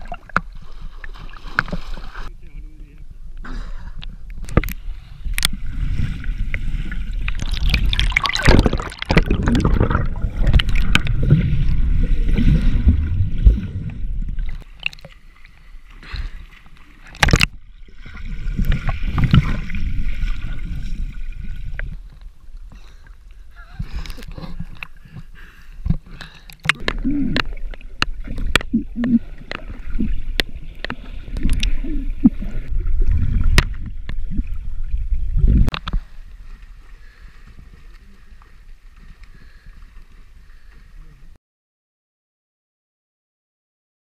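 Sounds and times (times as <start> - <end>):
water sloshing and splashing: 0.0 - 2.3, 4.4 - 41.0.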